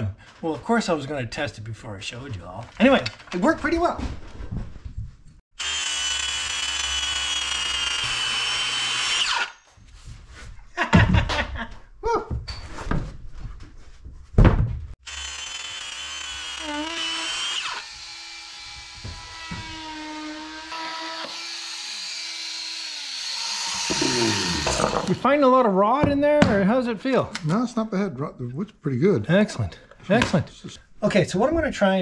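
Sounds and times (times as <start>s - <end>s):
circular saw cutting foam: 5.6s - 9.7s, 15.0s - 25.2s
loud knocks and thumps: 14.3s - 15.0s.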